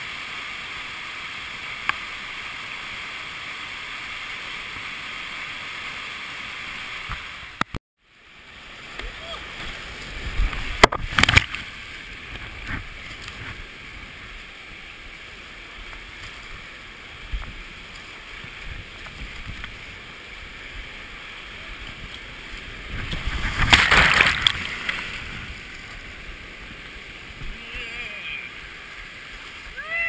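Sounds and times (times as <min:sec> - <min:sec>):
whitewater rushing: 0:08.2 - 0:30.0
water splashing over kayak: 0:08.6 - 0:30.0.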